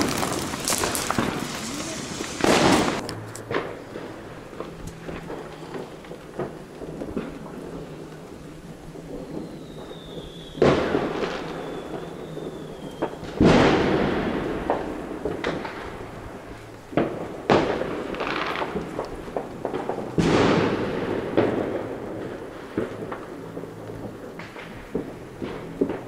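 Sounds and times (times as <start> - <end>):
fireworks bangs echoing: 0.0 - 26.0
rocket whistle: 9.2 - 13.4.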